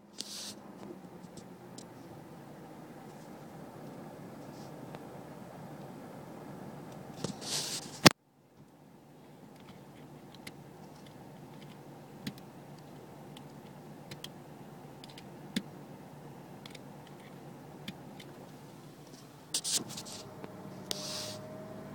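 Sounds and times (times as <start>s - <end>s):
car engine idling hum: 0.0s - 21.9s
light clicks and handling noises: 6.9s - 14.4s
rustling: 7.2s - 8.1s, 18.4s - 21.4s.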